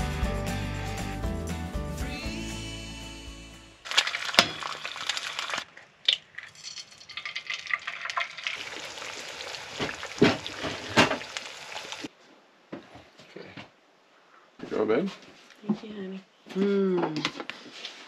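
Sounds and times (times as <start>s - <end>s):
eggs sizzling in a skillet: 3.8s - 5.7s, 6.4s - 12.1s
egg cracking: 3.8s - 12.1s.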